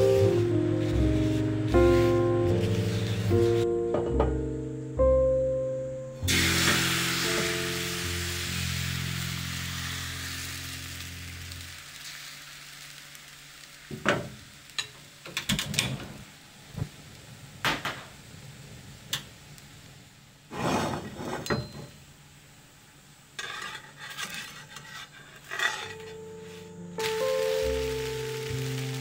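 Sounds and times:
batter sizzling in frying pan: 0.0 - 3.6, 6.2 - 20.6, 23.2 - 29.0
knife scraping pan: 23.4 - 26.2.

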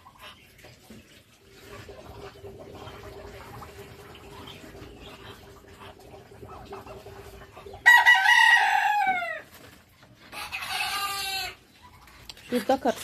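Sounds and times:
rooster crowing: 7.8 - 9.4.

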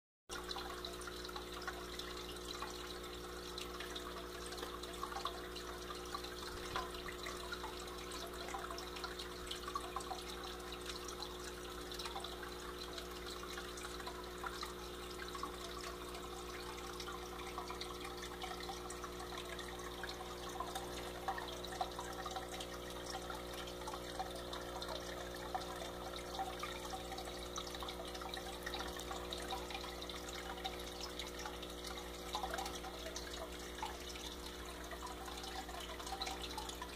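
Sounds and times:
water drips: 0.3 - 36.9
water trickling into tank: 0.3 - 36.9.

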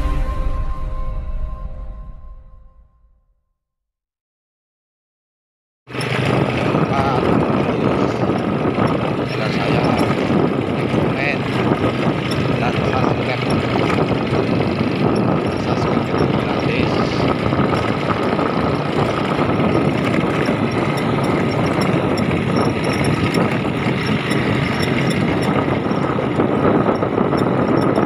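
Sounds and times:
motorcycle riding on dirt track: 5.9 - 28.0.

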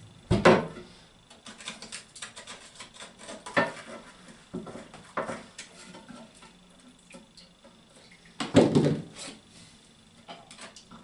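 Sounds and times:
small clicks and scrapes: 1.3 - 6.6, 10.3 - 11.0.

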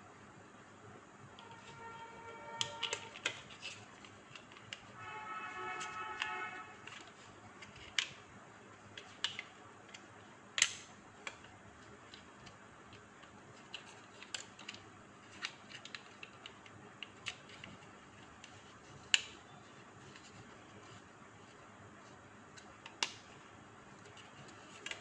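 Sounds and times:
sharp plastic snaps: 5.8 - 8.3, 8.9 - 17.8, 18.4 - 19.5, 22.5 - 23.4.

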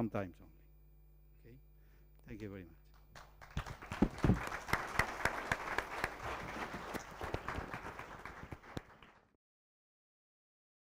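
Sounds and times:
audience applauding: 3.1 - 9.4.

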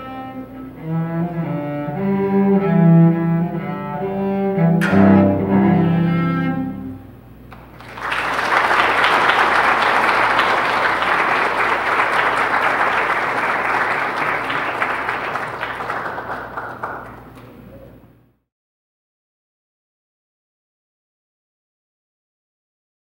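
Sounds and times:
cello bowed notes: 0.0 - 7.5
congregation applauding: 7.5 - 17.7.

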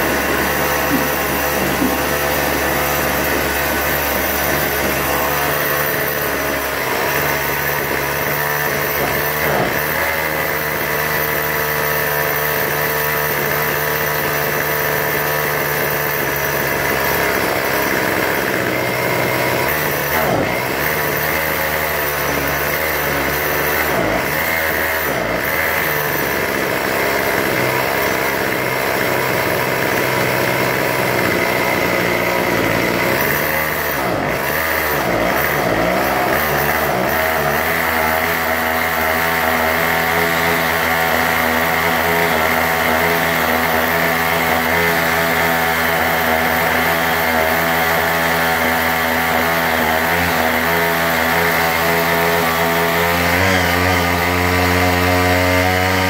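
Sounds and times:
string trimmer engine running: 0.0 - 56.0.

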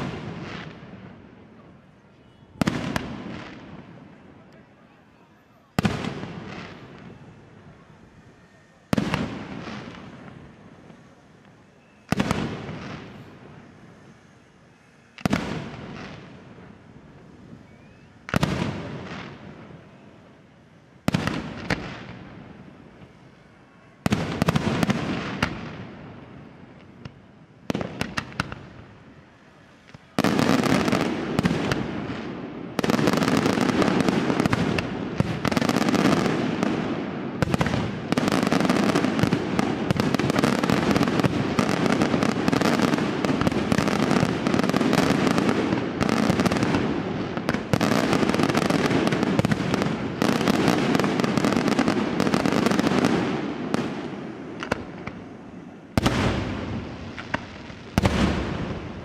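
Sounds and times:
firework barrage crackling: 0.0 - 59.0.

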